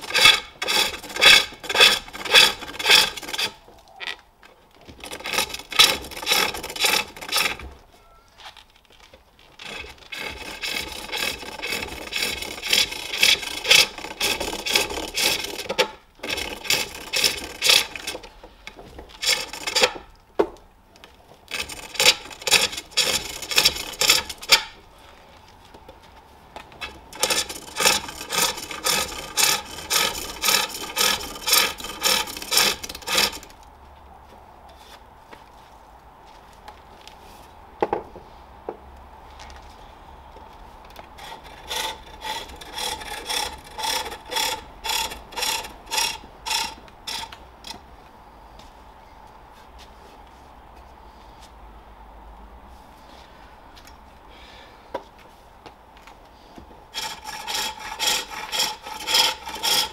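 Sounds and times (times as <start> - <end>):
turning tool shaving wood on lathe: 0.0 - 3.6, 4.9 - 7.7, 9.6 - 18.4, 19.1 - 20.1, 21.5 - 24.8, 26.8 - 33.6, 41.2 - 47.8, 56.9 - 59.9.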